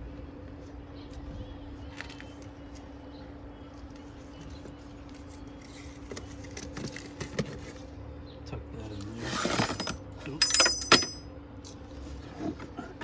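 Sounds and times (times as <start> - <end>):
steady low hum: 0.0 - 13.0
metal car parts clinking: 9.4 - 11.4.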